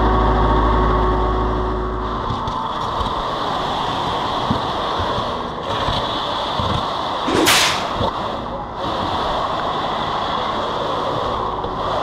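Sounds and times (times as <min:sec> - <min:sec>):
loud hissing burst: 0:07.3 - 0:08.1.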